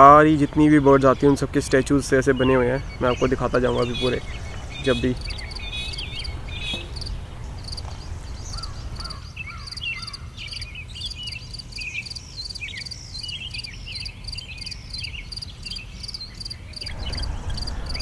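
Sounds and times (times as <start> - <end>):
birds chirping and calling: 0.0 - 18.0
low rumble: 1.4 - 9.4, 16.8 - 18.0
repeating high-pitched chirp: 2.3 - 9.0.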